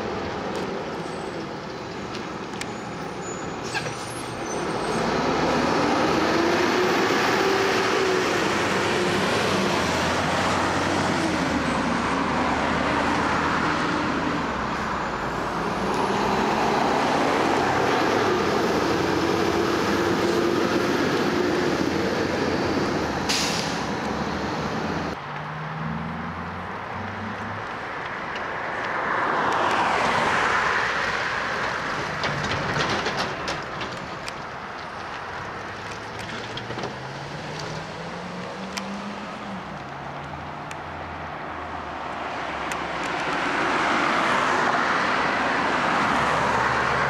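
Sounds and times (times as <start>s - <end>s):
garbage trucks driving past: 0.0s - 28.0s, 29.9s - 40.7s
air brakes hissing: 23.2s - 24.0s.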